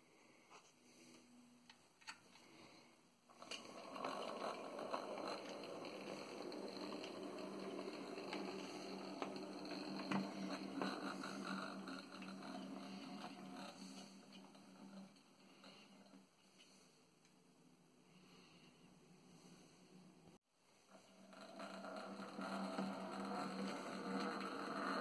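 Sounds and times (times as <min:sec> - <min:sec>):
wheels rattling over rails: 0:03.3 - 0:16.2, 0:20.9 - 0:25.0
small electric motor whirring: 0:03.4 - 0:15.7.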